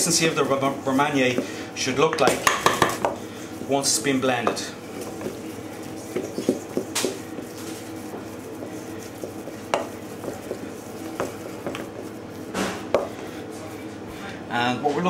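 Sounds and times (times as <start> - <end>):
soft scraping stir in a bowl: 0.0 - 14.3
utensil knocking against bowl: 1.3 - 3.2, 4.3 - 13.2.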